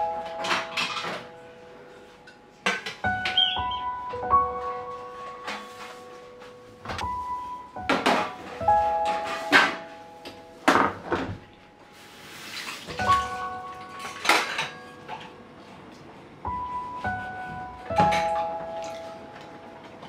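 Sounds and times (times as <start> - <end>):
dishes and pots clinking: 0.0 - 1.4, 2.2 - 4.0, 4.6 - 6.1, 7.8 - 11.5, 12.3 - 15.4, 17.9 - 20.0
soft background music: 0.0 - 20.0.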